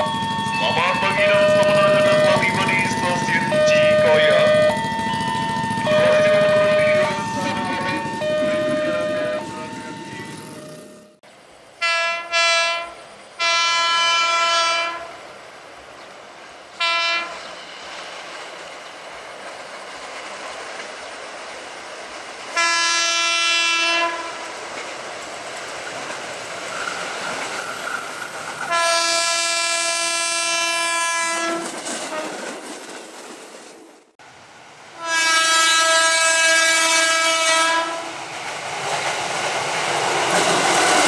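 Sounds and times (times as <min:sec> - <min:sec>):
train running noise: 0:00.0 - 0:41.0
train horn blasts: 0:00.5 - 0:04.8, 0:05.7 - 0:10.7, 0:11.8 - 0:15.2, 0:16.8 - 0:17.5, 0:22.6 - 0:24.4, 0:28.7 - 0:32.4, 0:35.0 - 0:38.2.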